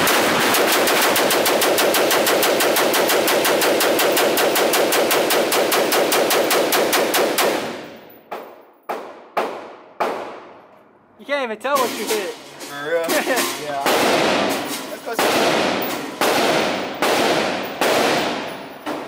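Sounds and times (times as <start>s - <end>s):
rifle rapid fire echoing indoors: 0.0s - 10.6s, 13.8s - 19.0s
single rifle shots: 13.8s - 19.0s.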